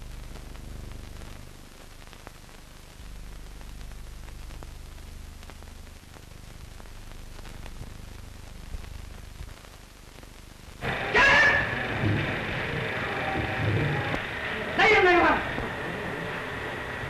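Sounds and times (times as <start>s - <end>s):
faint crackles and clicks: 0.0s - 17.0s
film soundtrack hiss and hum: 0.0s - 17.0s.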